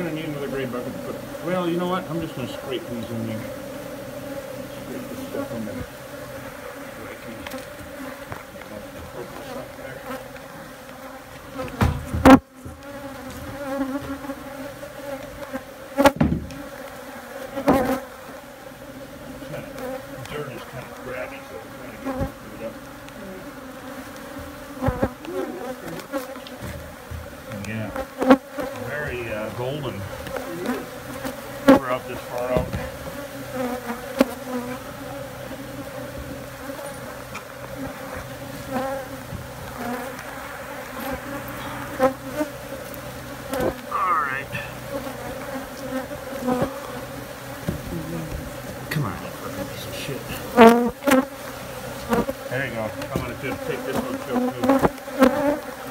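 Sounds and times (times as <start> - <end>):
bees buzzing: 0.0 - 55.9
single bee buzzing past: 0.0 - 55.9
knocks and scrapes on wooden floorboards: 11.7 - 14.2.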